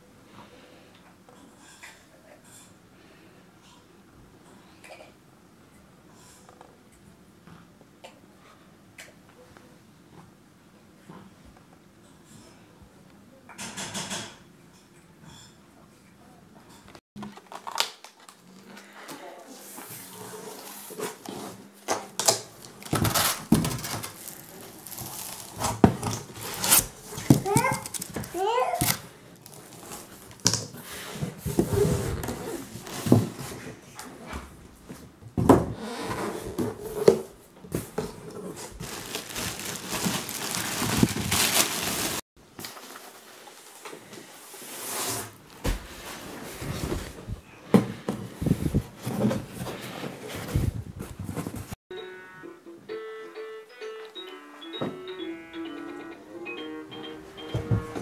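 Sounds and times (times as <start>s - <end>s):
cardboard scraping and rustling: 22.8s - 33.8s, 35.8s - 51.8s
fabric dust cover rustling: 23.0s - 28.1s, 38.7s - 42.2s
chair knocking against cardboard box: 26.8s - 28.4s, 35.4s - 35.8s, 57.4s - 58.0s.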